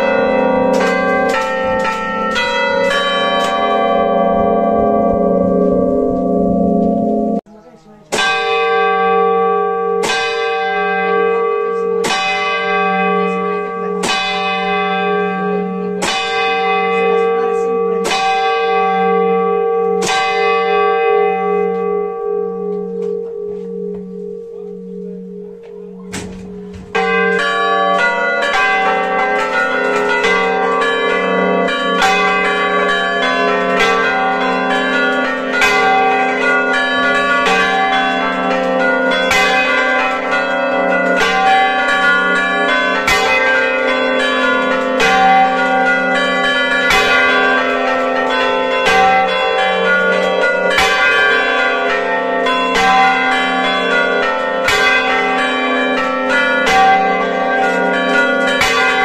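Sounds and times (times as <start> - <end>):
large church bell striking: 0.0 - 59.0
smaller church bells ringing: 0.0 - 59.0.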